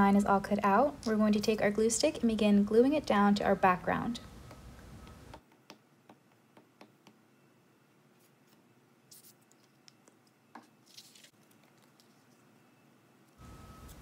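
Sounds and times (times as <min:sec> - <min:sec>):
glue stick tapping on paper: 0:05.3 - 0:07.2.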